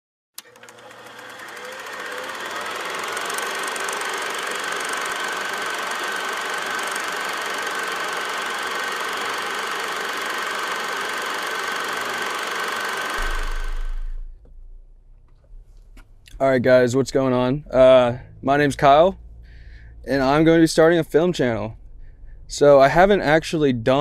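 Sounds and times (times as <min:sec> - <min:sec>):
projector click: 0:00.4 - 0:14.1
film projector motor whirring: 0:00.4 - 0:14.3.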